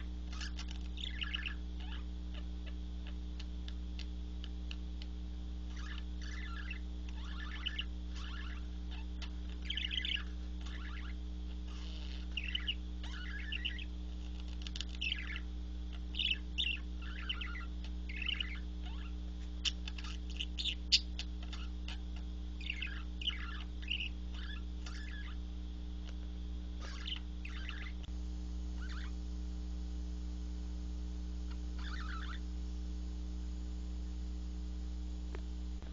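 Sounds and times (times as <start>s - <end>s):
budgerigar chirping: 0.0s - 5.1s, 5.7s - 25.4s, 26.8s - 28.0s, 28.8s - 29.1s, 31.5s - 32.4s
low hum: 0.0s - 35.9s.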